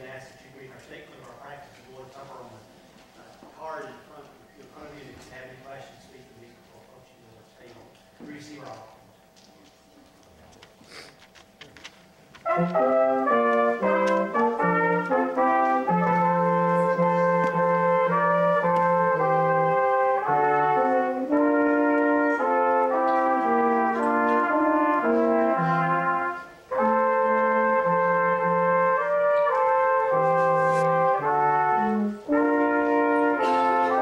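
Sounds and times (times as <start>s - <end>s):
slow brass hymn-like music: 12.3s - 34.0s.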